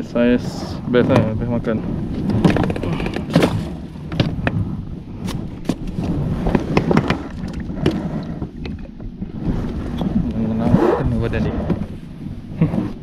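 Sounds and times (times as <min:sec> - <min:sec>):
steady low rumble: 0:00.0 - 0:13.0
plastic cooler box clattering: 0:02.2 - 0:04.4
cooler lid opening and shutting: 0:02.2 - 0:04.6.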